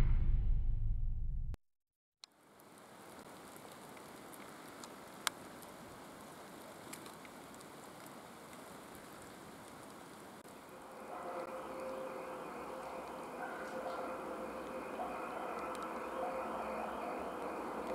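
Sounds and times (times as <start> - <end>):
light clicks and crackles: 2.2 - 10.3
faint steady hiss: 2.3 - 17.9.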